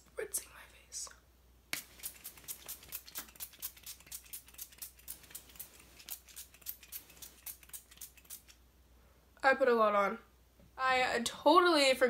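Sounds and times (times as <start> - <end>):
spray bottle hissing puffs: 1.8 - 8.5.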